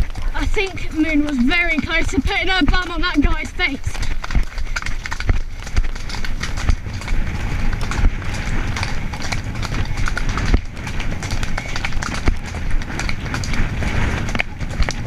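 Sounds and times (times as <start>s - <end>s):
horse hoofbeats on dirt: 0.0s - 15.0s.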